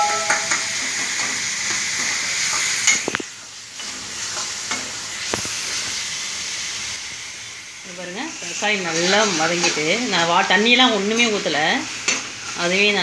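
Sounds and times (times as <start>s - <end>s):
tomatoes sizzling in hot oil: 0.0s - 13.0s.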